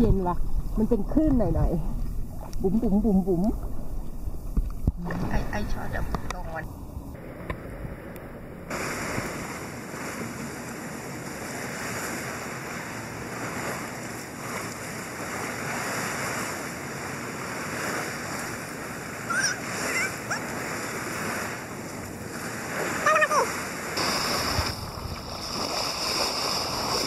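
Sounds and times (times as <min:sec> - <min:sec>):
sea water lapping: 0:00.0 - 0:27.0
brief high-pitched calls: 0:19.3 - 0:20.4.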